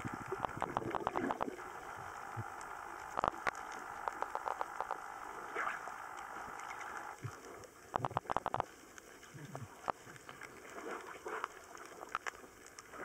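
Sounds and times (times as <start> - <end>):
sharp clicks and crackles: 0.0 - 13.0.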